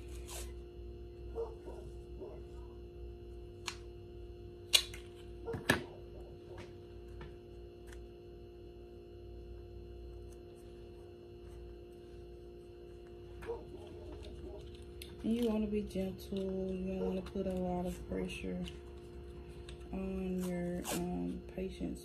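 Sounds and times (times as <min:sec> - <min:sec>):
tape tearing from dispenser: 0:00.0 - 0:00.6, 0:19.6 - 0:21.4
background hum: 0:00.0 - 0:22.0.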